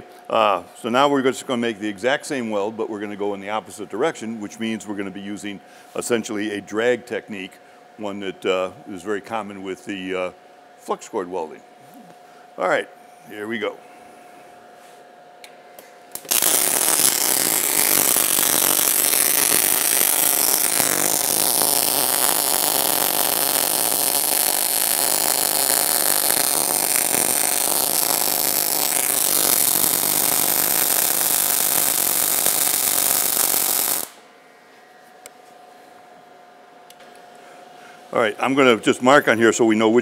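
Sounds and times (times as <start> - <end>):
welding arc crackling hiss: 16.1 - 34.3.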